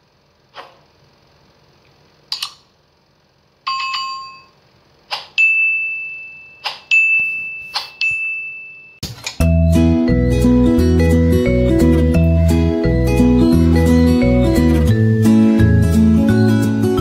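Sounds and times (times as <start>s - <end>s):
high bell-like ringing tone: 3.7s - 4.6s, 5.4s - 9.0s
short ringing chime: 5.4s - 9.0s
music with plucked notes: 9.3s - 17.0s.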